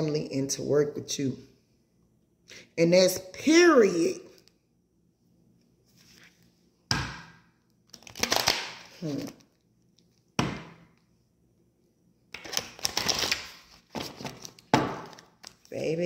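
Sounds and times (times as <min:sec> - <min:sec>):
cards shuffling with papery clicks: 0:07.8 - 0:10.1, 0:12.4 - 0:15.8
cards slapping: 0:07.9 - 0:09.4.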